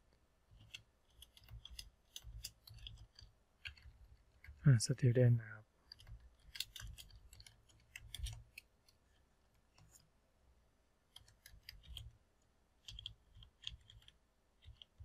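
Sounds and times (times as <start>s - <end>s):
keyboard typing: 0.5s - 4.6s, 5.8s - 10.0s, 11.1s - 12.2s, 12.8s - 15.0s.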